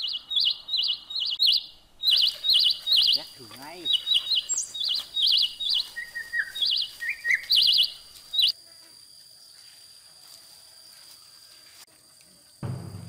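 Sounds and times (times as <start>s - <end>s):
songbird trilling calls: 0.0s - 8.5s.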